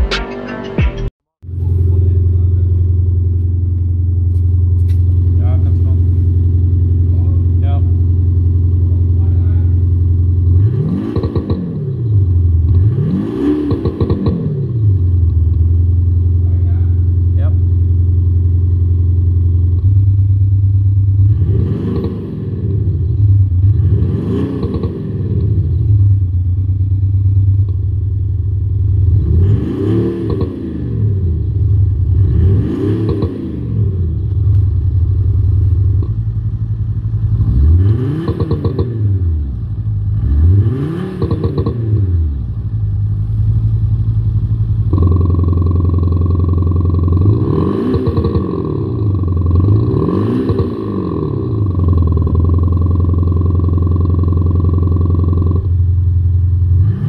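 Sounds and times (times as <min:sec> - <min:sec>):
synthetic engine exhaust revving: 0:04.4 - 0:18.0, 0:21.1 - 0:26.3, 0:28.8 - 0:42.6, 0:44.5 - 0:55.7.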